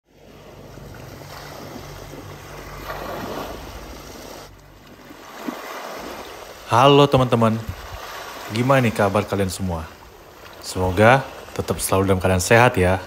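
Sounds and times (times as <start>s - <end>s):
low hum: 0.0s - 13.0s
waves washing over rocks: 0.1s - 13.0s
wind on the microphone: 7.6s - 8.2s.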